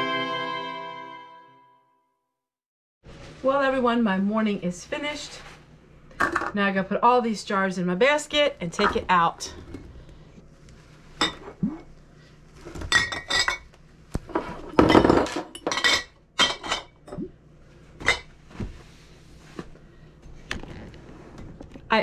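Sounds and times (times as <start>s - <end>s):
glass jars clinking: 12.9s - 13.6s, 14.8s - 17.3s.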